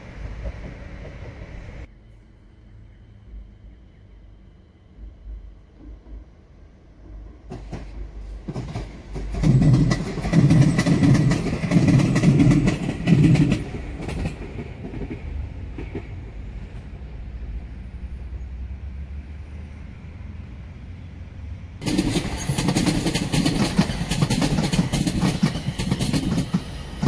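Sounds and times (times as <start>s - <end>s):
train wheels clacking on rails: 0.0s - 1.9s, 7.0s - 16.9s, 21.8s - 27.0s
train low rumble: 0.0s - 27.0s.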